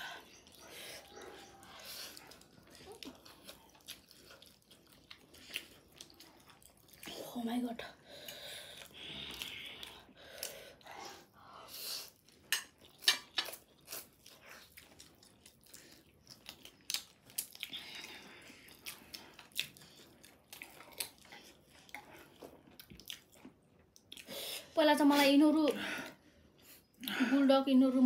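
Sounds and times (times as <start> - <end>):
chewing and biting: 0.0 - 11.3, 12.0 - 24.8.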